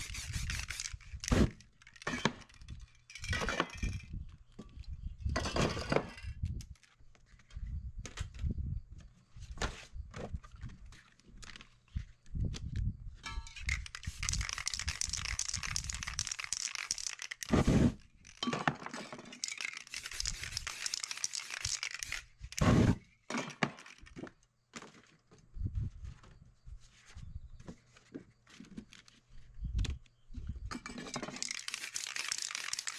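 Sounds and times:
spray paint can hissing: 0.0s - 1.4s, 13.7s - 17.6s, 19.4s - 22.7s, 31.4s - 32.9s
small clicks and knocks: 13.3s - 17.5s
paper crinkling: 13.7s - 17.5s, 19.4s - 22.2s, 31.4s - 32.9s.

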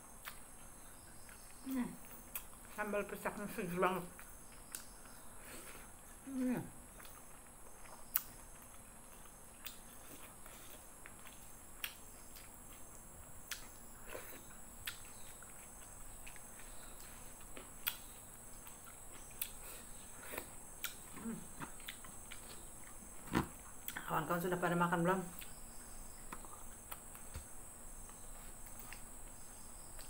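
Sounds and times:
faint high-pitched hum: 0.0s - 30.0s.

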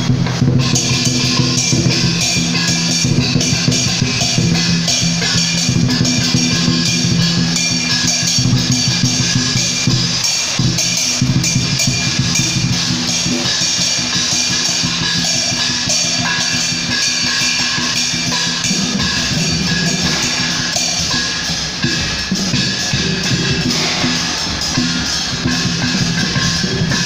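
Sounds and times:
drums and cymbals beating: 0.0s - 27.0s
steady held tones: 11.3s - 27.0s.

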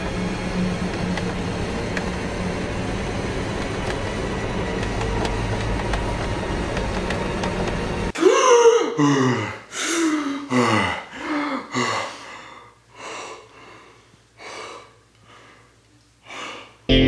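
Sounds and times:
man gasping and panting: 8.2s - 16.9s.

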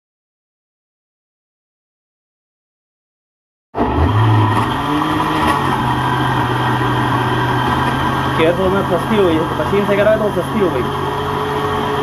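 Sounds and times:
electric blender motor grinding: 3.8s - 12.0s.

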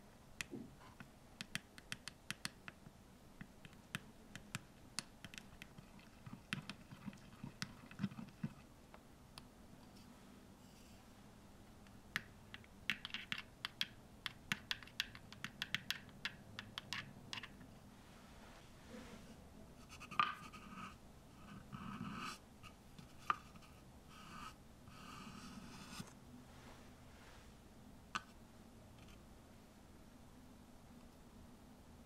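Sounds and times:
spoon tapping small cups: 12.2s - 17.6s.

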